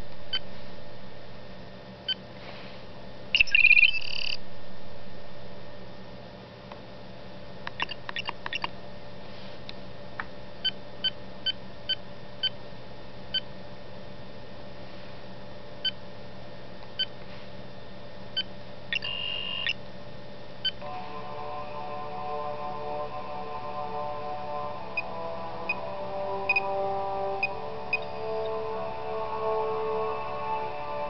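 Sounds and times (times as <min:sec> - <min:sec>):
short electronic beeps: 0:03.4 - 0:04.4, 0:19.0 - 0:19.8.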